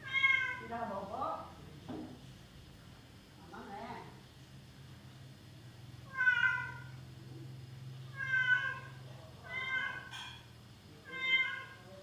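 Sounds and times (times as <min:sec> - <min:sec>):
cat meowing: 0:00.0 - 0:00.7, 0:06.0 - 0:07.0, 0:08.1 - 0:10.2, 0:11.0 - 0:11.9.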